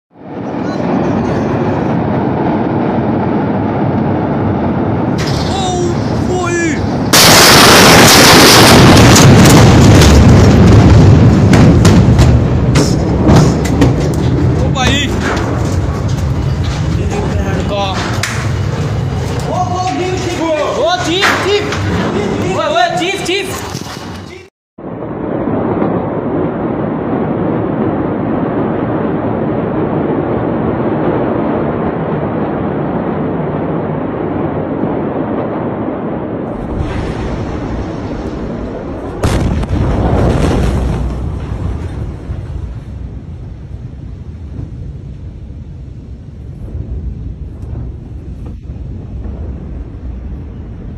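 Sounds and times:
steady rushing noise: 0:00.1 - 0:50.9
distorted explosion rumble: 0:00.2 - 0:50.9
falling debris crashes: 0:05.1 - 0:24.5, 0:36.5 - 0:43.4.

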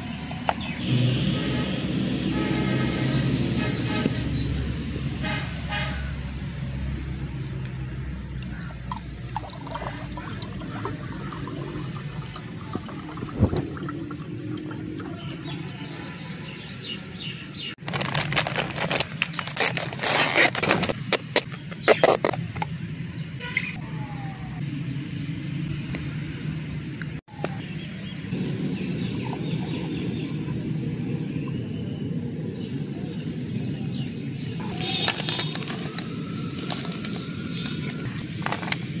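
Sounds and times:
drink pouring into a glass: 0:08.8 - 0:15.3.

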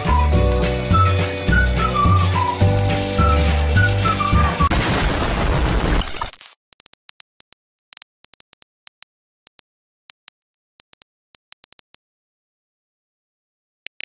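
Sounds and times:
keystroke clicks: 0:06.7 - 0:12.0.

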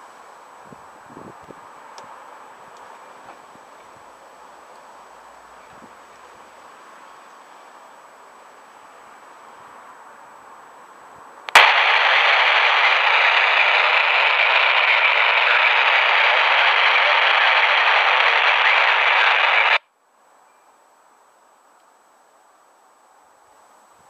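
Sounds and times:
radio squelch click: 0:11.5 - 0:19.8
radio static hiss: 0:11.5 - 0:19.8.

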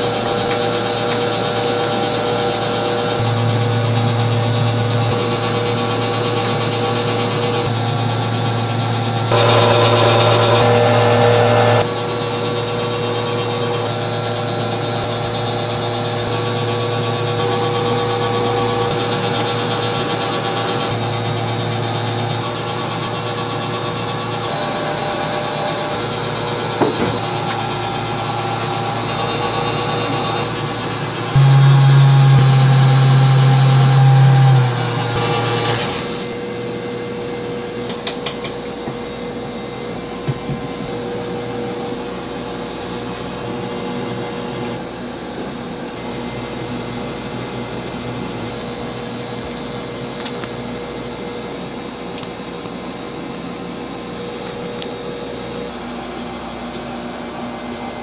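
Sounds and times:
loud low hum: 0:00.0 - 0:22.8, 0:24.4 - 0:37.4
motor whirring: 0:09.0 - 0:11.9, 0:24.3 - 0:36.4
steady tones: 0:24.3 - 0:35.9.

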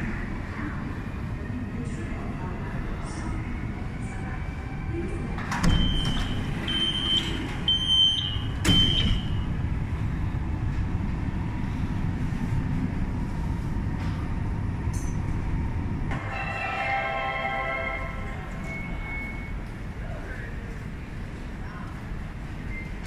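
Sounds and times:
subway train rumbling: 0:00.0 - 0:23.0
short high door warning beeps: 0:05.6 - 0:09.4.

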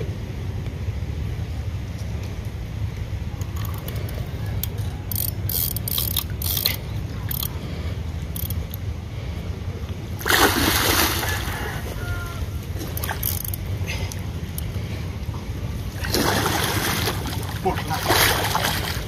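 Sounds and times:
steady low rumble: 0:00.0 - 0:19.0
water splashing: 0:10.2 - 0:13.2, 0:15.9 - 0:19.0.

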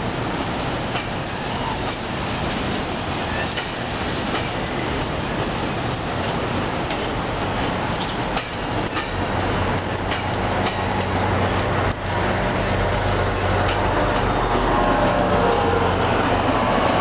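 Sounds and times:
train coaches rumbling past: 0:00.0 - 0:17.0
wheel clacks over rail joints: 0:00.9 - 0:04.7, 0:07.8 - 0:11.2, 0:11.8 - 0:16.6.

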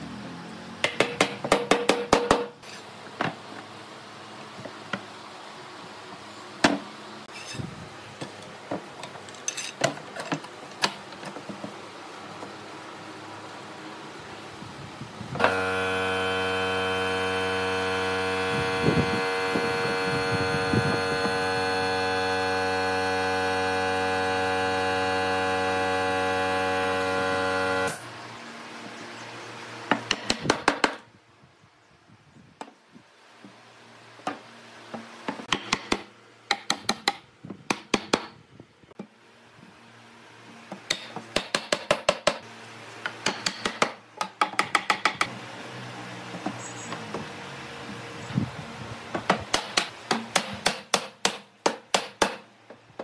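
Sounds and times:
electric motor humming: 0:15.3 - 0:28.0.

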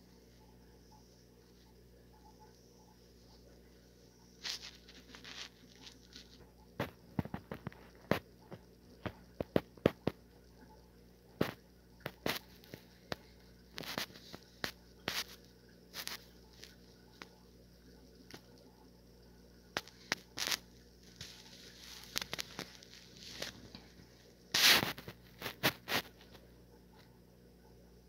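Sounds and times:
paper packaging rustling: 0:04.4 - 0:06.4, 0:20.4 - 0:23.8.

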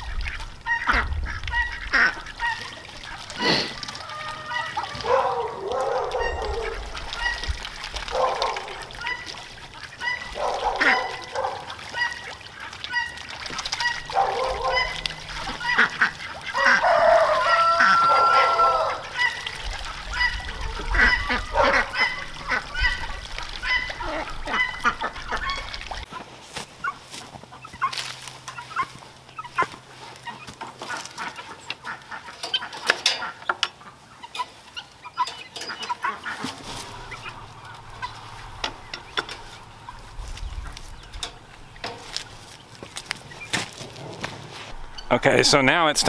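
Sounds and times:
ducks calling: 0:00.0 - 0:46.0
ducks splashing in water: 0:00.0 - 0:46.0
wooden gate clicking and latching: 0:32.4 - 0:33.8.

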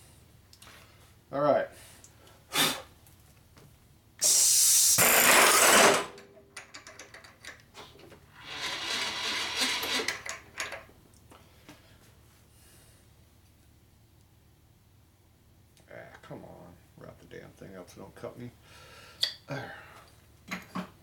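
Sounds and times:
drill whining: 0:04.2 - 0:06.2, 0:08.4 - 0:10.3.

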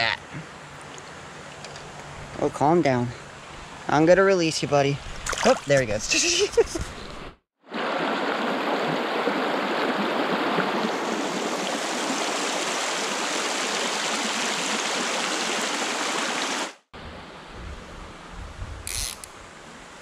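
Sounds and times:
mountain stream running: 0:00.0 - 0:06.5, 0:07.7 - 0:16.8.

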